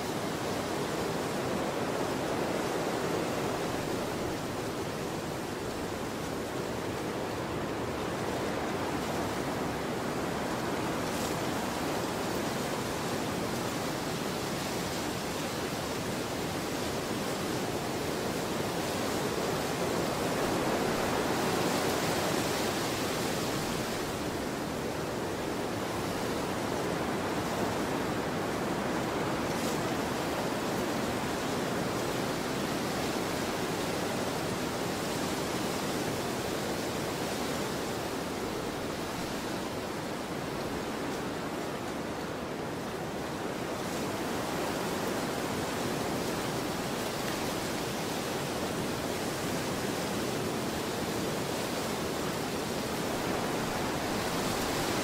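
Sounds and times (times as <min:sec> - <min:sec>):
rushing wind: 0:00.0 - 0:55.0.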